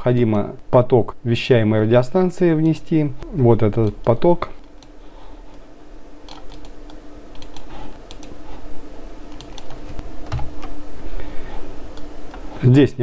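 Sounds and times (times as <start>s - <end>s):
faint steady hum: 0.0s - 13.0s
keyboard and mouse clicks: 6.2s - 8.4s, 9.3s - 10.8s.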